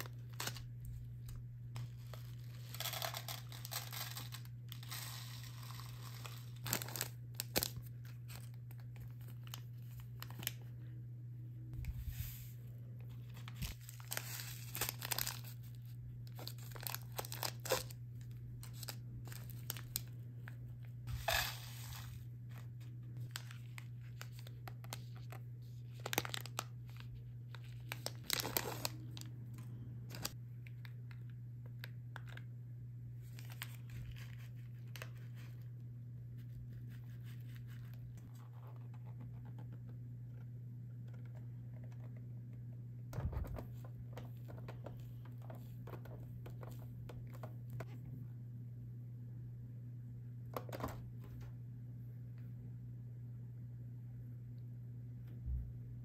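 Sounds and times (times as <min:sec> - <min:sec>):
foil packets tearing and crinkling: 0:00.0 - 0:00.7, 0:01.8 - 0:10.6, 0:13.3 - 0:20.2, 0:23.2 - 0:29.3
steady low hum: 0:00.0 - 0:56.0.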